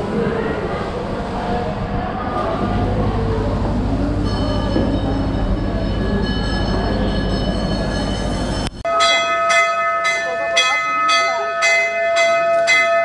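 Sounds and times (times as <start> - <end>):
brass bells ringing faintly: 4.2 - 13.0
hanging brass bell strikes: 4.2 - 13.0.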